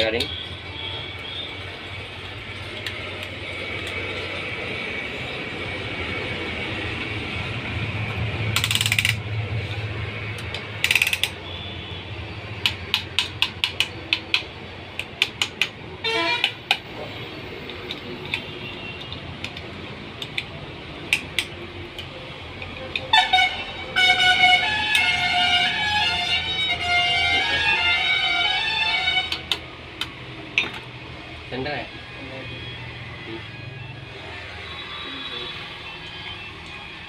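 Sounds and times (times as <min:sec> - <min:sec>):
sharp ratchet clicks: 0:08.5 - 0:09.3, 0:10.4 - 0:11.5.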